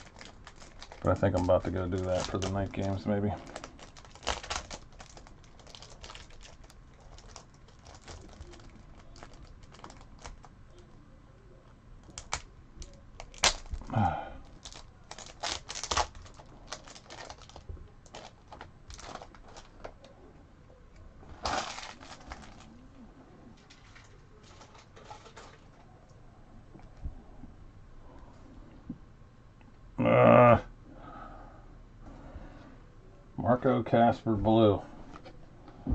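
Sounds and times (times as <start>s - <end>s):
shrink-wrap crinkling and tearing: 0.0s - 10.8s, 12.0s - 20.1s, 21.3s - 22.8s, 23.6s - 25.8s.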